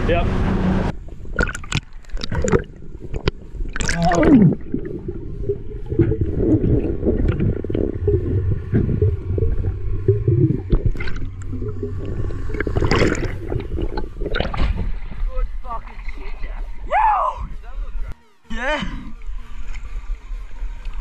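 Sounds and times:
low underwater rumble: 0.4 - 18.2
bubbles and splashing: 1.2 - 15.2
loud falling whine: 4.4 - 15.2.

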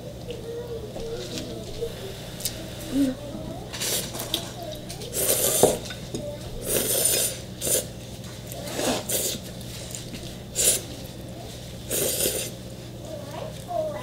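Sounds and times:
noodles slurping: 1.3 - 6.0, 6.6 - 11.1, 11.8 - 12.6.

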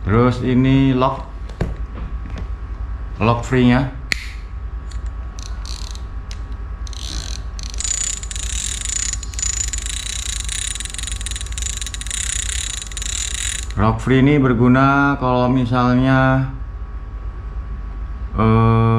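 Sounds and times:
fishing reel mechanism clicks: 4.9 - 13.8
fishing reel ratcheting whirr: 4.9 - 13.8.

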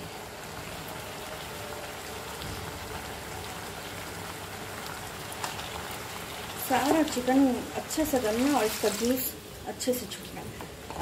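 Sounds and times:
chicken sizzling in a pan: 0.0 - 10.4.

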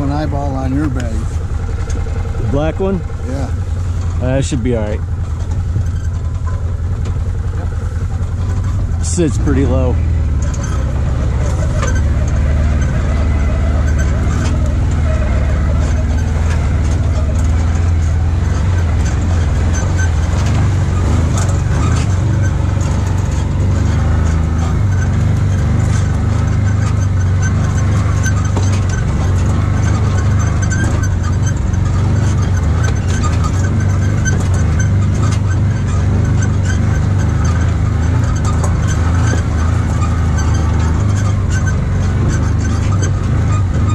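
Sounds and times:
vehicle engine droning: 0.0 - 43.9.

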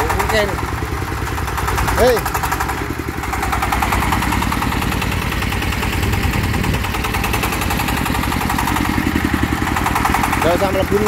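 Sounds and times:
diesel engine chugging: 0.0 - 11.0.

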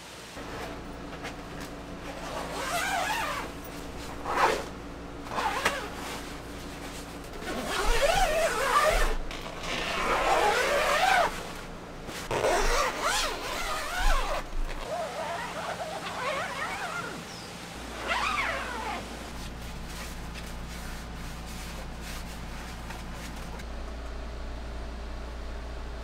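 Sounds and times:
canvas flap rustling: 0.4 - 23.6
zippers being pulled open: 2.1 - 4.7, 5.3 - 6.4, 7.4 - 17.3, 17.9 - 19.5.

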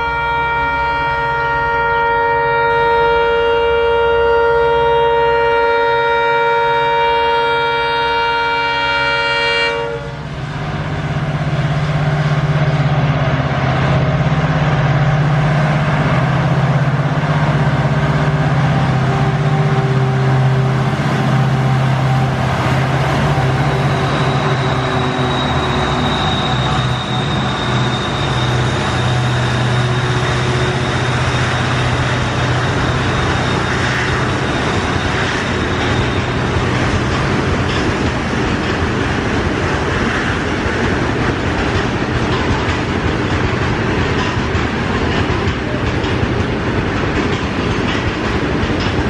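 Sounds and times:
locomotive horn blast: 0.0 - 10.3, 16.7 - 36.8
diesel locomotive engines passing: 0.0 - 49.0
freight wagons passing: 10.2 - 49.0.

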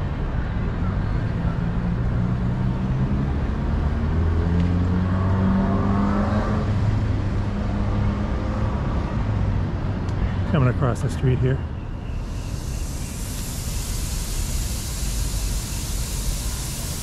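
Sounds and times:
vehicle engine running: 12.2 - 17.0.

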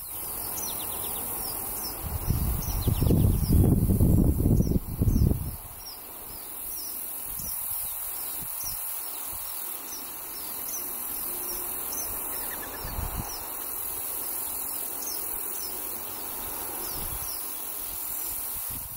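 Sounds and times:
insect chorus drone: 0.0 - 18.9
thin bird calls: 9.8 - 13.6.

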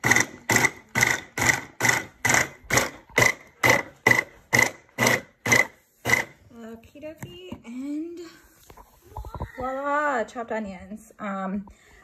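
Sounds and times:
blender motor chopping in bursts: 0.0 - 6.4.

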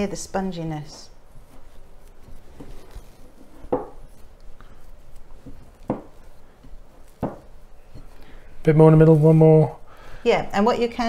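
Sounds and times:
dough slapping and squelching: 1.2 - 9.4.

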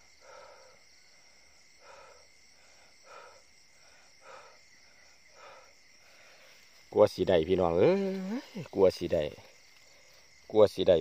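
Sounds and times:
crickets chirring: 0.0 - 11.0.

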